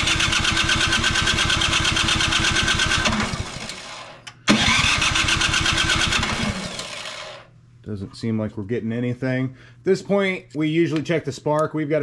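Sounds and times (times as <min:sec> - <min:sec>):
engine cranking on electric starter: 0:00.0 - 0:07.5.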